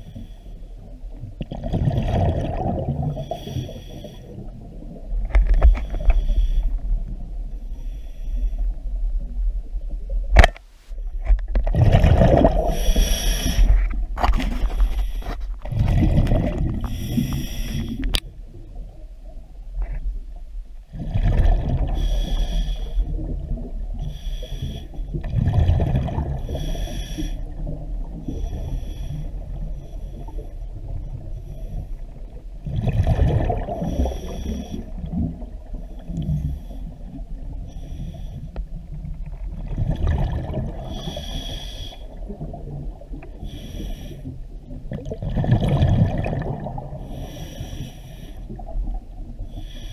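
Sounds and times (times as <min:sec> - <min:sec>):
exhaled bubbles rumbling: 0:00.8 - 0:08.0, 0:11.1 - 0:41.4, 0:42.0 - 0:43.7, 0:44.3 - 0:47.7, 0:48.4 - 0:49.6
regulator hissing inhalations: 0:12.7 - 0:13.8, 0:16.8 - 0:18.0, 0:26.5 - 0:27.4, 0:41.0 - 0:42.1.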